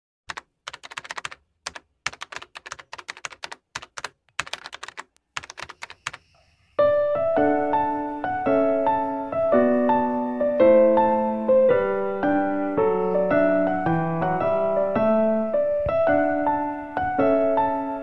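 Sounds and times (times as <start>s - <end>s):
keyboard key clicks: 0.3s - 6.3s
soft piano tune: 6.8s - 18.0s.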